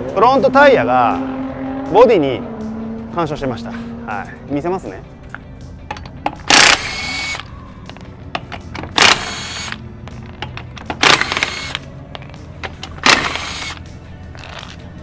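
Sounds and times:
impact wrench bursts: 6.5 - 7.5, 8.9 - 9.8, 10.9 - 11.8, 13.0 - 13.8.

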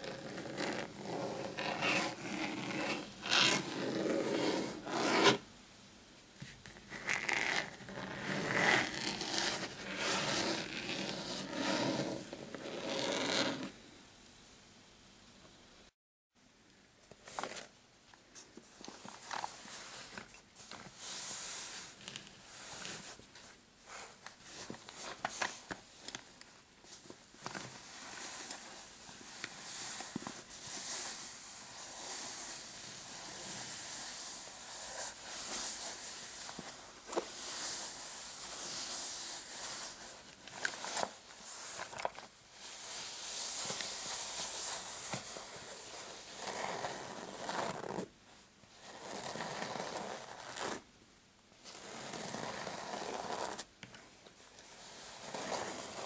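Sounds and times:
fingernails scratching on fabric: 7.0 - 13.7.

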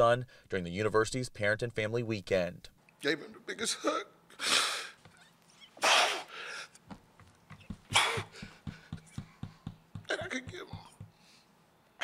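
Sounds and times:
man sobbing: 3.4 - 6.7, 7.8 - 9.4, 10.0 - 11.0.

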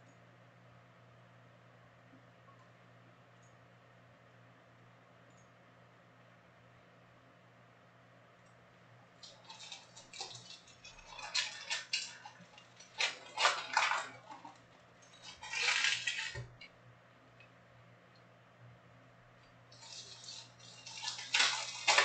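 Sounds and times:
foil wrappers crinkling: 9.2 - 16.6, 19.7 - 22.0.

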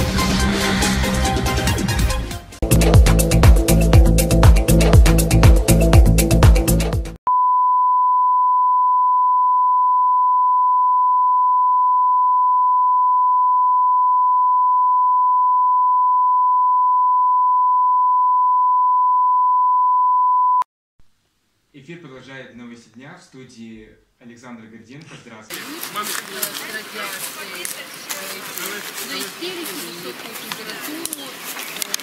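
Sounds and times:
electronic music: 0.0 - 7.2.

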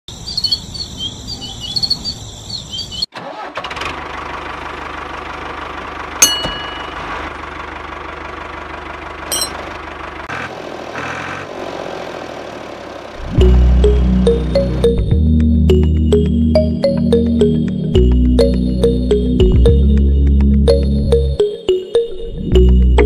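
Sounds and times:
high chirping: 0.1 - 3.1.

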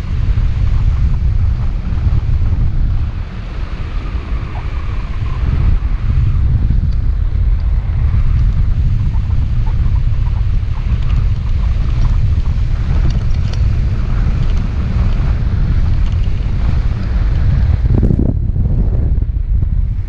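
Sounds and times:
wind rushing over microphone: 0.0 - 20.0.

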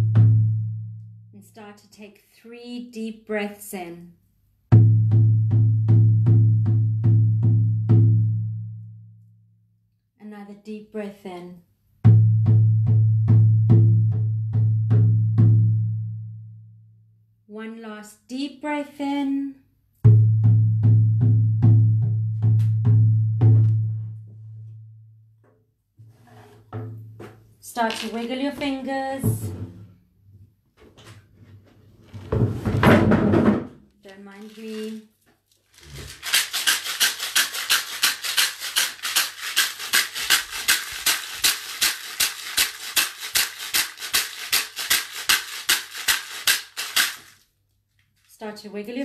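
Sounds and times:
frame drum booming beats: 4.7 - 8.5, 12.1 - 15.9, 20.1 - 23.9, 29.0 - 29.9.

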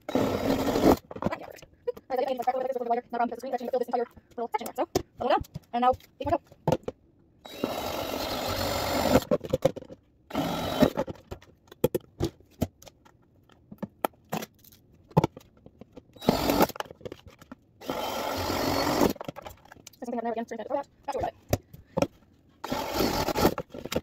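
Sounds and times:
cordless drill boring plastic: 0.1 - 1.0, 7.5 - 9.4, 10.3 - 11.0, 16.2 - 16.8, 17.8 - 19.3, 22.6 - 23.8.

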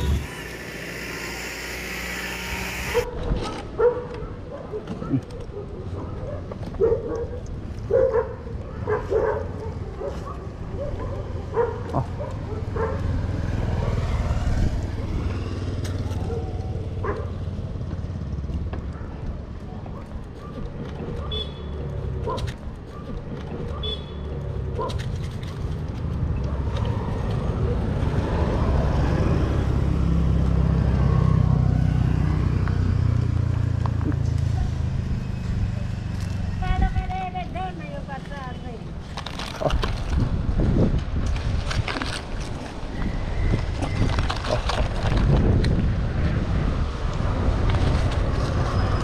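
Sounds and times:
road traffic passing: 0.0 - 49.0
vehicle passing close: 12.7 - 18.4.

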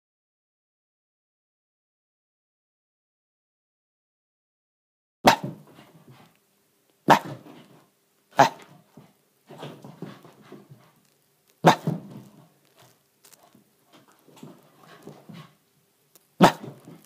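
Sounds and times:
dog barking: 5.2 - 5.6, 7.1 - 7.4, 8.4 - 8.7, 11.6 - 12.1, 16.4 - 16.9
soft low dog sounds: 7.1 - 15.8.

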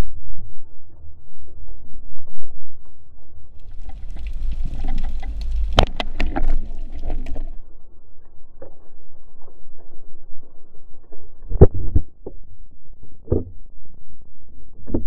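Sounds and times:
underwater water rumble: 0.0 - 15.0.

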